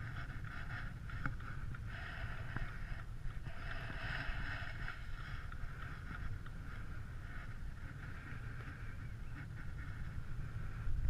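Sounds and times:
tyres hissing on snow: 1.9s - 6.0s.

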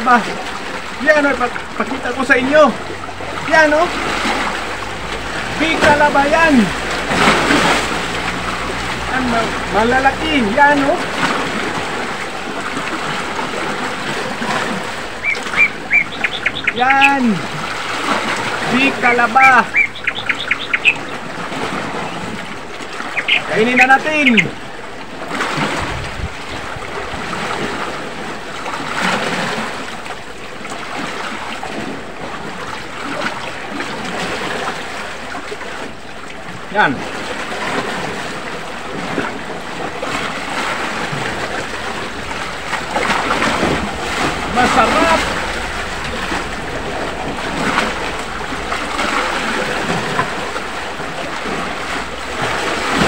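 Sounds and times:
sea waves washing on rocky shore: 0.0s - 53.0s
wind buffeting microphone: 24.2s - 28.7s, 37.7s - 53.0s.

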